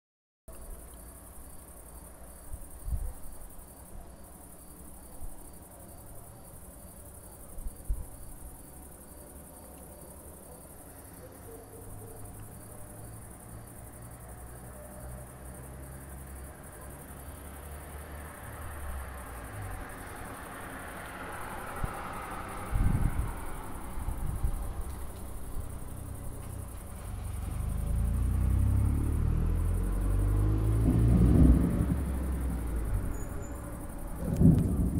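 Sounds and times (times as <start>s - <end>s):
crickets chirping: 0.5s - 34.9s
low thumps: 30.8s - 33.1s, 34.2s - 34.9s.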